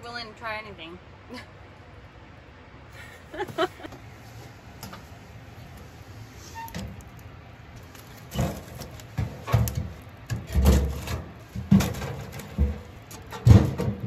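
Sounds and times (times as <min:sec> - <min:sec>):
logs knocking in wood stove: 0:08.4 - 0:14.0.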